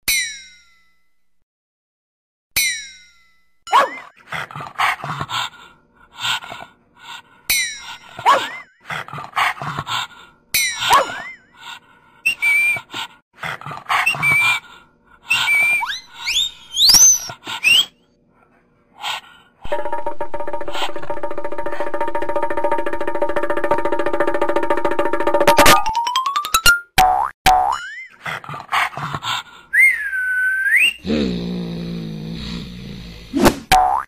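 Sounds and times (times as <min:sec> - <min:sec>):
whistling swoops: 0:12.3 - 0:12.9, 0:15.3 - 0:18.0, 0:29.8 - 0:31.0
high whistle notes: 0:15.3 - 0:18.0.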